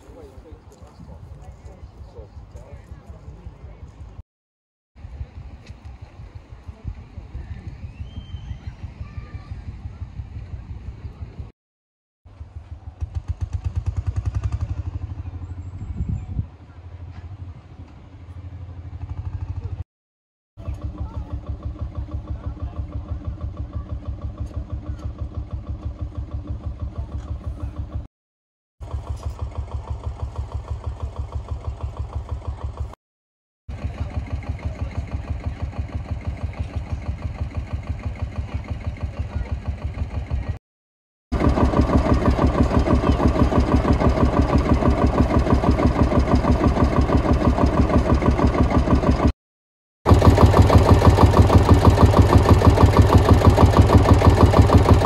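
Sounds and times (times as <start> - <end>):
engine running steadily: 20.6 - 28.1, 28.8 - 33.0, 33.7 - 40.6, 41.4 - 49.3, 50.1 - 55.0.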